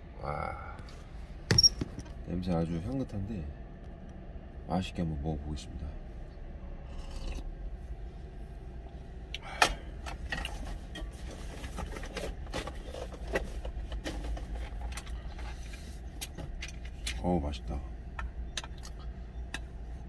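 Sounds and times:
steady low rumble: 0.0 - 20.0
slurping soup: 6.8 - 7.5.

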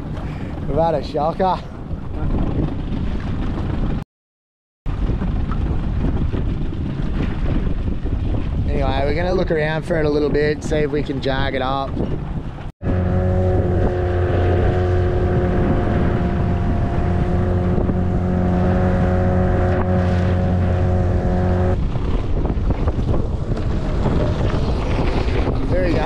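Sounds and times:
water noise: 0.0 - 4.0, 4.9 - 26.0
wind: 0.0 - 4.0, 4.9 - 26.0
small boat motor running: 12.8 - 21.8.

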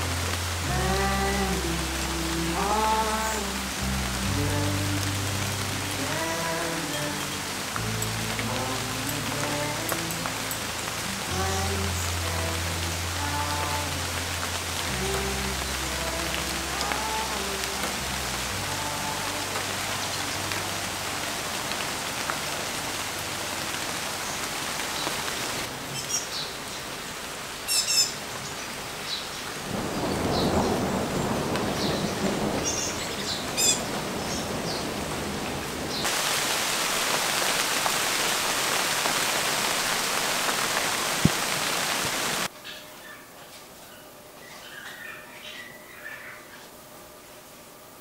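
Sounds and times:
steady rain: 0.0 - 48.0
bird chirps: 27.7 - 28.2, 32.7 - 34.9
low rumble of thunder: 29.6 - 36.0.

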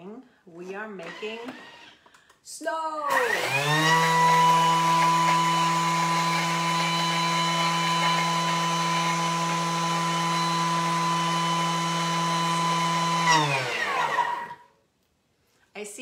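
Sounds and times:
blender motor whining: 1.0 - 2.0, 3.1 - 14.7.

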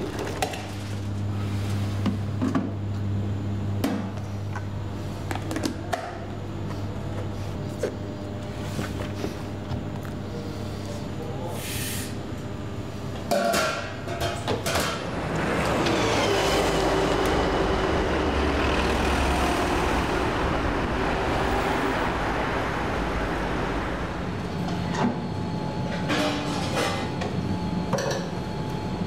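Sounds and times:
street traffic: 15.0 - 24.9
car driving past: 15.2 - 24.3.

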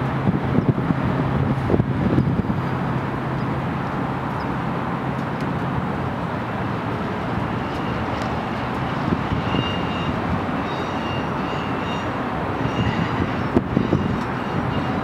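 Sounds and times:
train wheels rumbling on rail: 0.0 - 15.0
thin high squeal: 7.6 - 15.0.

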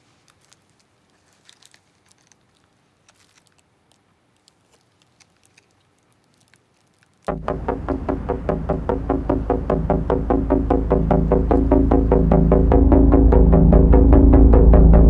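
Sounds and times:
cellophane wrapper crinkling: 0.0 - 7.3
loud electronic music: 7.3 - 15.0.

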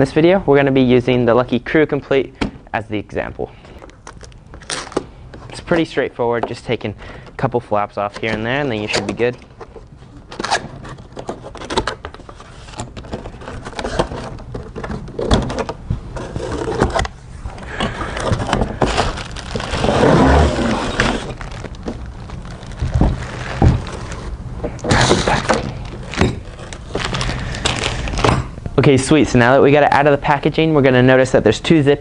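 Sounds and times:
plastic wrapping crinkling: 3.9 - 5.7, 17.7 - 28.3
cardboard flaps torn open: 18.4 - 24.3.

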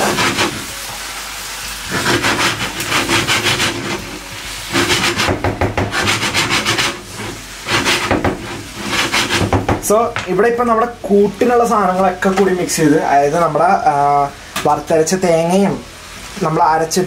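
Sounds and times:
utensil scraping pan: 0.0 - 0.8, 1.8 - 9.8.

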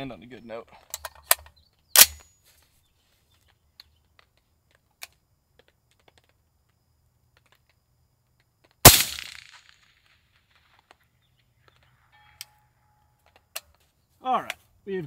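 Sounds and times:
suppressed rifle shot with echo: 8.8 - 10.6.

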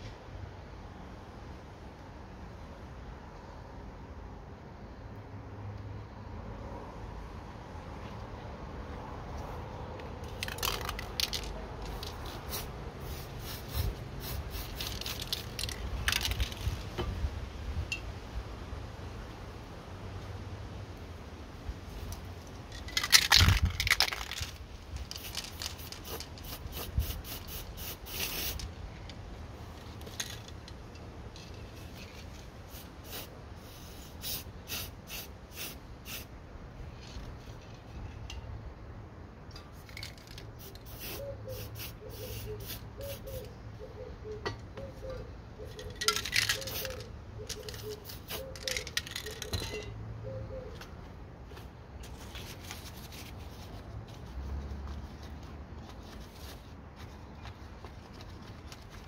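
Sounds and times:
spray cans clicking and rattling: 10.2 - 17.0, 22.1 - 28.7, 29.8 - 33.2, 39.6 - 43.4, 45.7 - 50.0
aerosol spray hissing: 12.2 - 14.9, 25.8 - 28.6, 40.9 - 43.4.

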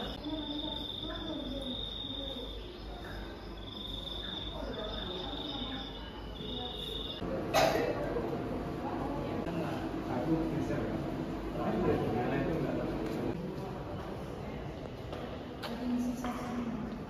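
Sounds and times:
high cricket-like trill: 0.0 - 7.2
murmur of people talking: 0.0 - 17.0.

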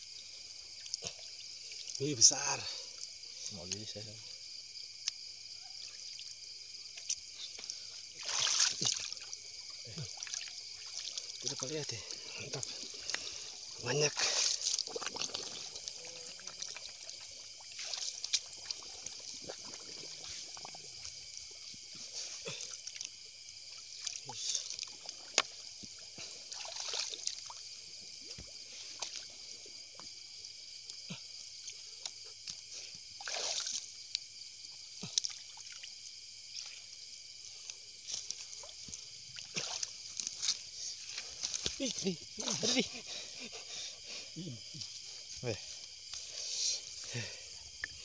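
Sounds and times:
night insects chorus: 0.0 - 48.0
hands splashing in water: 8.1 - 9.4, 26.4 - 27.5, 33.2 - 33.9, 38.1 - 41.8.

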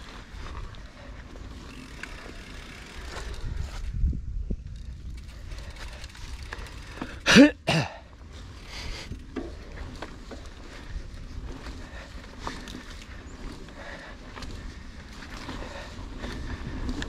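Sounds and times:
bike rolling on dirt trail: 0.0 - 17.0
person coughing: 7.2 - 8.0.

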